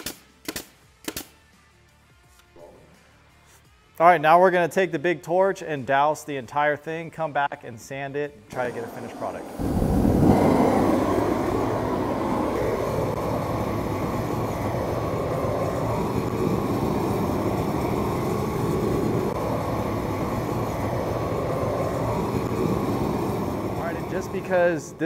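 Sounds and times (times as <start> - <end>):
propane torch flame rushing: 8.5 - 25.0.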